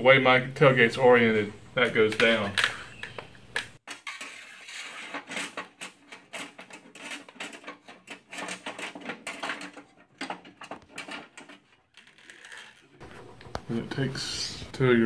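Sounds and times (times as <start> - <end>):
metal parts clinking and rattling: 5.0 - 13.1.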